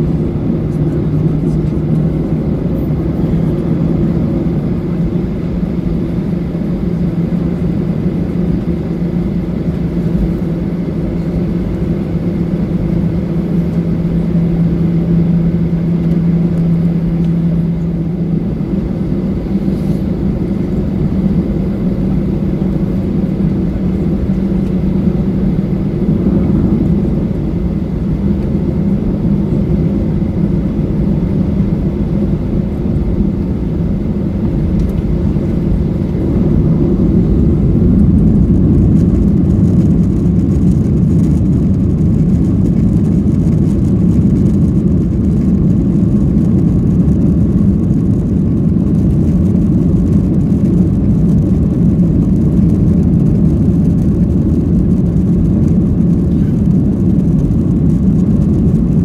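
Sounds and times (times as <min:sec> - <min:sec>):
jet engines roaring: 0:00.0 - 0:59.0
low hum: 0:00.0 - 0:59.0.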